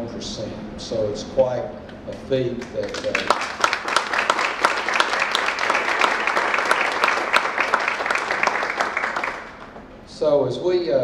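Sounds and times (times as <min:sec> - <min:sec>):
audience applauding: 0:02.8 - 0:09.8.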